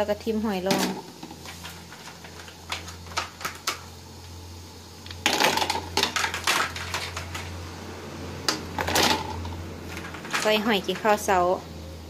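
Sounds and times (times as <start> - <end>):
snail shells clicking in metal pot: 0.6 - 4.4, 5.0 - 7.7.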